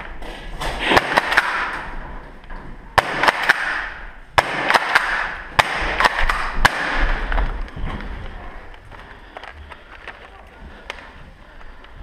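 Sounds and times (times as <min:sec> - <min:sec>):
airsoft gun cracks with echo: 0:00.7 - 0:01.9, 0:03.0 - 0:07.3.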